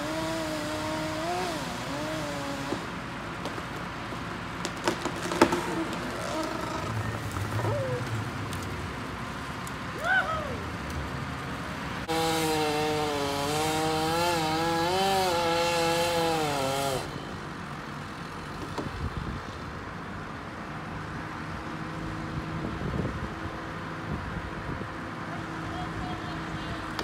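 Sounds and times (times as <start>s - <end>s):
chainsaw running at high revs: 0.0s - 3.0s, 12.1s - 17.1s
engine humming low: 0.0s - 14.6s.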